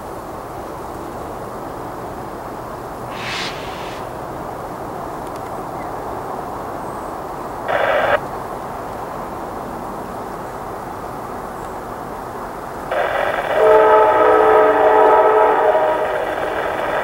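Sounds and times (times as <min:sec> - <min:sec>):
train rumble: 0:12.7 - 0:17.0
locomotive air horn blasts: 0:13.6 - 0:16.3.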